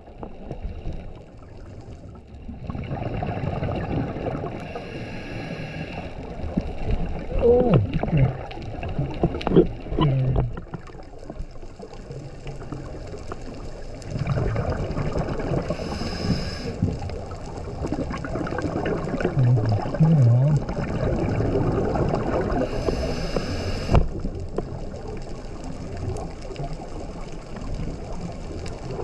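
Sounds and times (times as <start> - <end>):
exhaled air bubbling: 0.0 - 29.0
regulator hissing inhale: 4.6 - 6.3, 15.6 - 17.0, 22.6 - 24.1.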